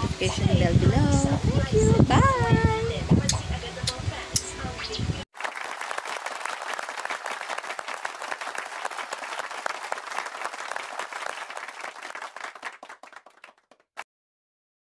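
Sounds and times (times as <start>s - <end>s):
crowd applause: 5.3s - 14.0s.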